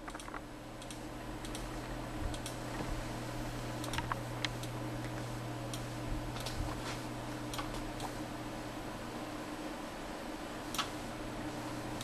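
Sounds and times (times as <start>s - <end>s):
computer mouse clicks: 0.0s - 2.8s, 3.8s - 6.6s, 7.5s - 8.2s, 10.7s - 11.0s
low electrical hum: 0.0s - 12.0s.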